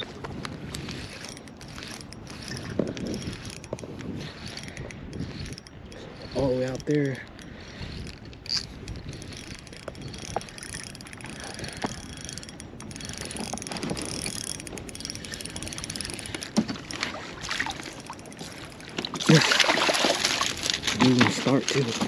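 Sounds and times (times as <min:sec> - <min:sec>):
water splashing and sloshing: 0:07.2 - 0:22.0.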